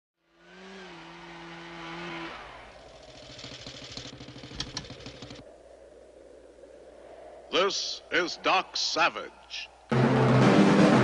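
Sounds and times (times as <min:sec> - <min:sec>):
snowmobile engine idling: 0:02.7 - 0:05.4.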